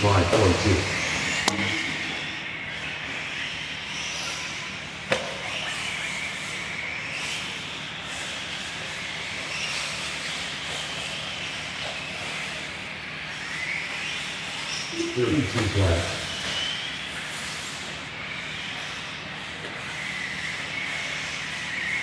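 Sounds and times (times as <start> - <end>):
rc car motors whining: 0.0 - 22.0
sharp click: 1.4 - 1.8.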